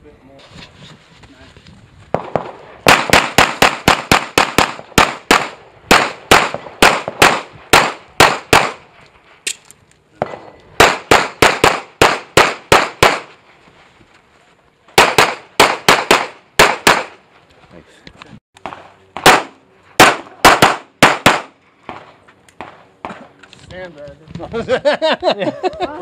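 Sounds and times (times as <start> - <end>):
rapid pistol fire: 2.2 - 8.8, 10.8 - 13.4, 15.0 - 17.2, 19.2 - 23.2.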